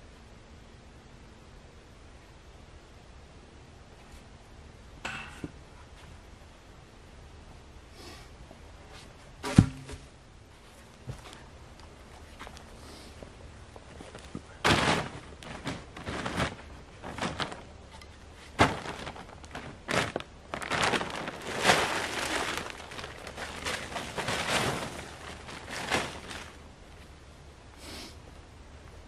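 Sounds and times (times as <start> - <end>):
plastic tarp crackling: 13.8 - 27.1.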